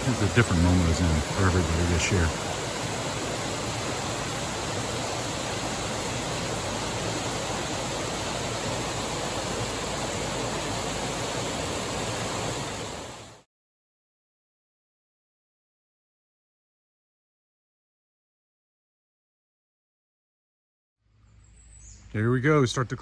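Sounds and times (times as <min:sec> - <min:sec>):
waterfall rushing: 0:00.0 - 0:13.4.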